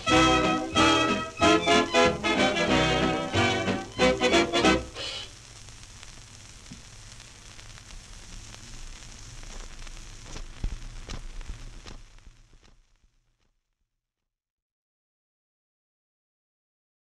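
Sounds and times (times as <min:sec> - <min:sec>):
record hiss and crackle: 0:00.0 - 0:13.9
record clicks: 0:08.0 - 0:12.8.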